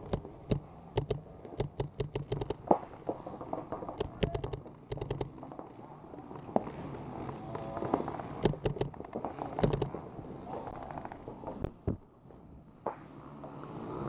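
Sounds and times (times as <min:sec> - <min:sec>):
paintball markers firing: 0:00.0 - 0:05.5, 0:08.4 - 0:10.0.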